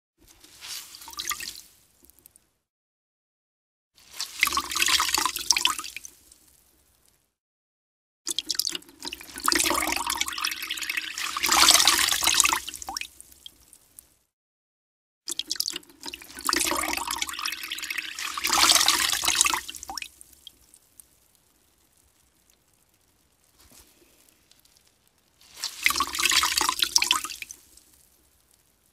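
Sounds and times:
water splattering from wrung clothes: 0:00.3 - 0:02.2, 0:04.0 - 0:06.4, 0:08.3 - 0:13.7, 0:15.3 - 0:20.6, 0:24.5 - 0:28.6
water dripping: 0:00.3 - 0:02.6, 0:04.0 - 0:07.3, 0:08.3 - 0:14.3, 0:15.3 - 0:28.9.

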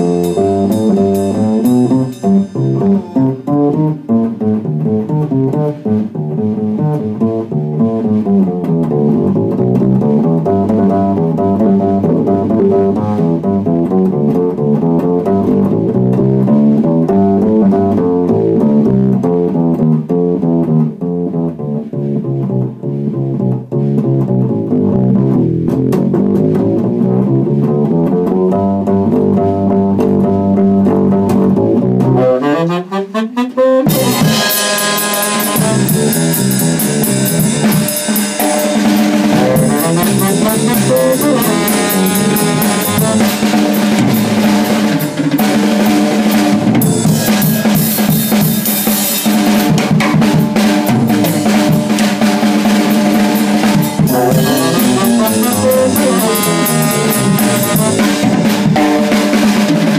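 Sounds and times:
drums with cymbals: 0:00.0 - 0:18.8, 0:33.8 - 0:59.9
upright bass walking line: 0:00.0 - 0:32.7, 0:33.6 - 0:59.9
saxophone lead: 0:27.9 - 0:49.4, 0:53.0 - 0:59.9.

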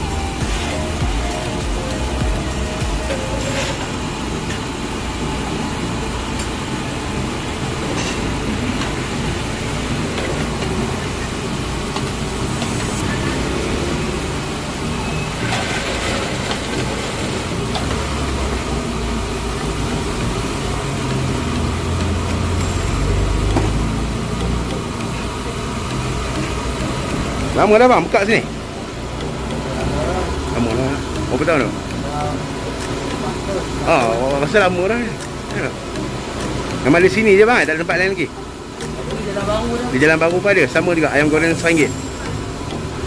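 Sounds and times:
oil sizzling in deep fryer: 0:00.0 - 0:27.6.

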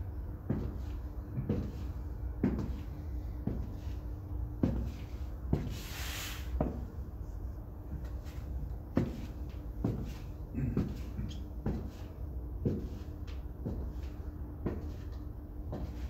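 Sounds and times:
high heels clicking on tiles: 0:00.4 - 0:04.0, 0:04.6 - 0:05.7, 0:07.9 - 0:16.0.

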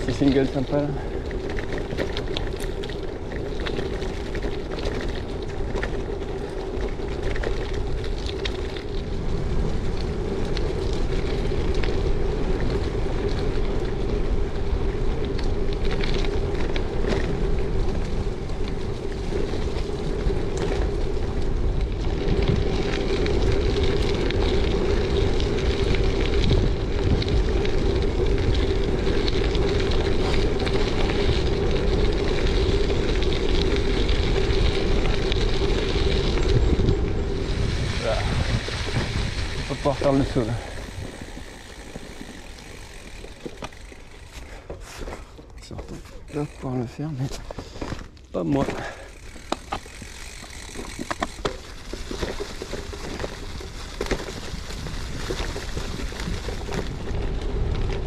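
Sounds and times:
bike clicks and rattles: 0:00.0 - 0:58.0
tyres on gravel: 0:00.0 - 0:58.0
wind on microphone: 0:07.9 - 0:43.9.

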